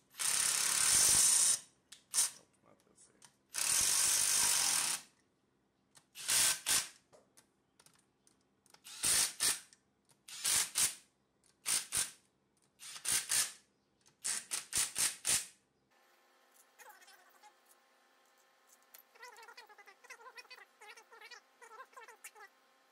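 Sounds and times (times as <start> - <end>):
cordless power screwdriver: 6.2 - 6.9, 8.8 - 9.6, 12.8 - 13.6.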